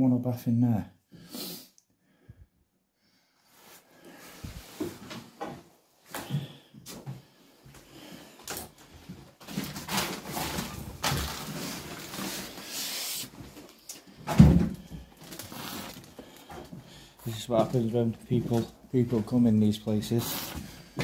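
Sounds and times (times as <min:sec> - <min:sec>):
rustling handling noise: 0:08.8 - 0:14.2, 0:15.0 - 0:21.0
footsteps and scuffing: 0:16.5 - 0:21.0.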